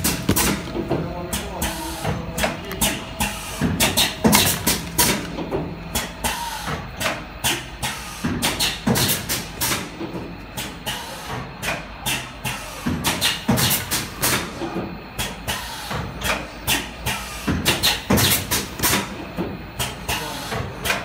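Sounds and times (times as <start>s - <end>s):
steady low hum: 0.0s - 12.6s
machine stations clacking: 0.0s - 21.0s.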